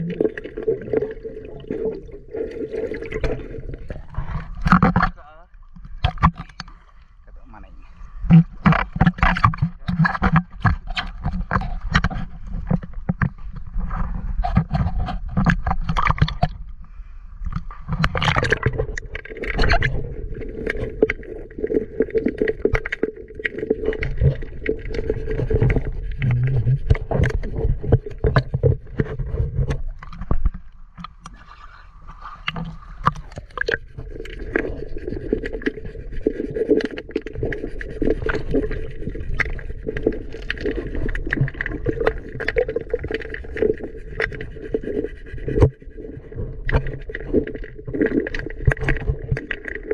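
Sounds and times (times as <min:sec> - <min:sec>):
muffled underwater water sloshing: 0:00.0 - 0:49.9
scrapes and knocks: 0:08.3 - 0:16.5.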